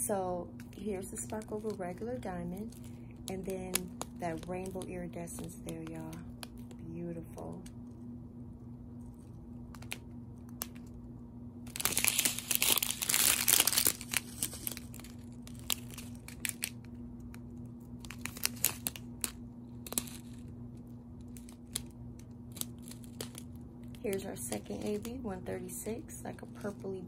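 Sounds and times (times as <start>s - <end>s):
steady low hum: 0.0s - 27.0s
plastic bags crinkling: 0.6s - 6.8s, 11.6s - 16.9s, 17.5s - 26.8s.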